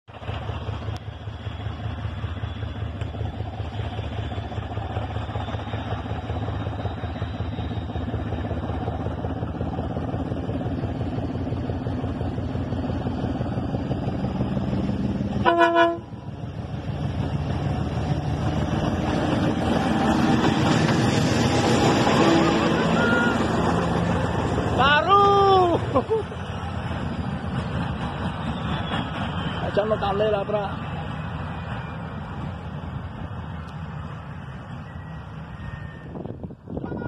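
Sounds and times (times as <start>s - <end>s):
diesel locomotive engine rumble: 0.0s - 37.0s
locomotive horn blast: 15.4s - 16.2s, 22.0s - 23.7s, 36.8s - 37.0s.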